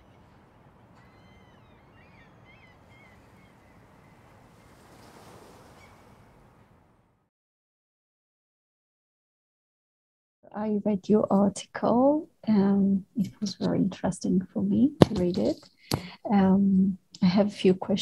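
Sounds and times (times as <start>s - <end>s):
bird chirps: 0.0s - 4.3s
wind and surf: 0.0s - 7.0s.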